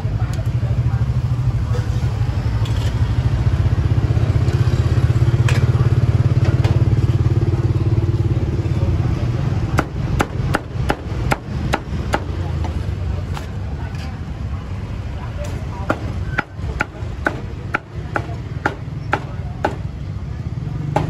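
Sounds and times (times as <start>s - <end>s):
cleaver chopping on wooden block: 9.8s - 12.8s, 15.9s - 19.9s.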